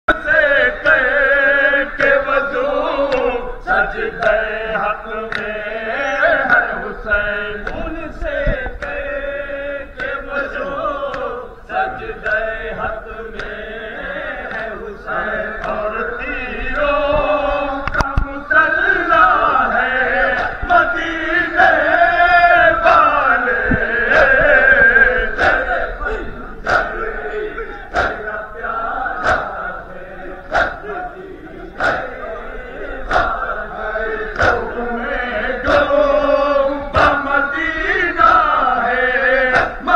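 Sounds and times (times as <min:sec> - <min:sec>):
men chanting in unison: 0:00.0 - 0:39.9
sharp slaps of chest-beating: 0:13.4 - 0:13.6, 0:20.3 - 0:20.6, 0:25.4 - 0:25.6, 0:26.6 - 0:27.0, 0:27.9 - 0:28.2, 0:29.2 - 0:29.6, 0:30.5 - 0:30.8, 0:31.8 - 0:32.1, 0:33.1 - 0:33.4, 0:34.3 - 0:34.7, 0:39.5 - 0:39.8.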